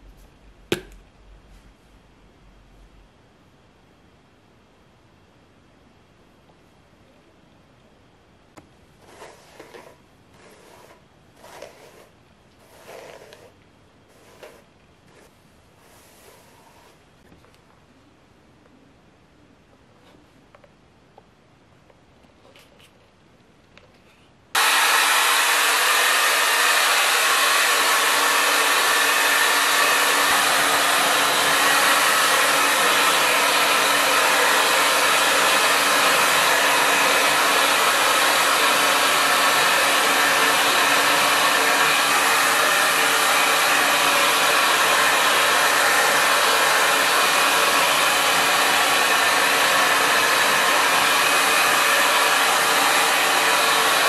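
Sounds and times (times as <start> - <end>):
hair dryer running: 24.6 - 54.0.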